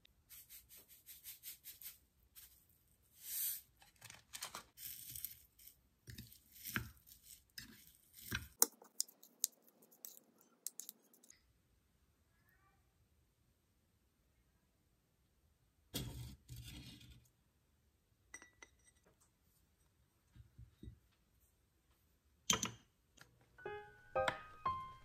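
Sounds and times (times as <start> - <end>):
spoon scraping wet salad: 4.8 - 11.3
seasoning shaker rattling: 8.5 - 11.3.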